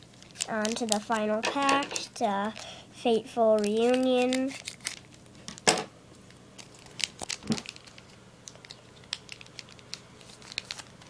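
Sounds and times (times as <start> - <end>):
foil wrapper tearing and crinkling: 0.0 - 1.3, 3.6 - 5.6, 6.6 - 11.0.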